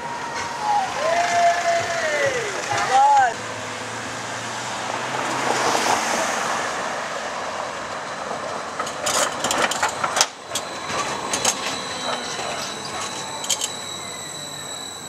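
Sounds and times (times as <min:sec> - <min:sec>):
wheels clacking over rail joints: 0:00.0 - 0:03.5, 0:07.6 - 0:15.0
tram rolling past: 0:00.0 - 0:15.0.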